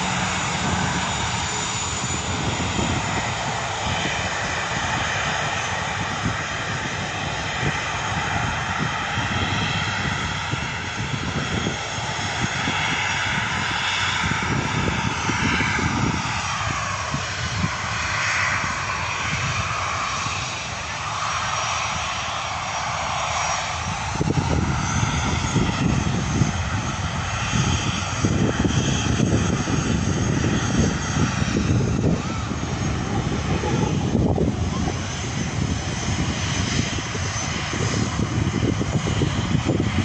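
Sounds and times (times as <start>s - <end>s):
jet engines rushing: 0.0s - 40.0s
crackling low rumble: 28.3s - 40.0s.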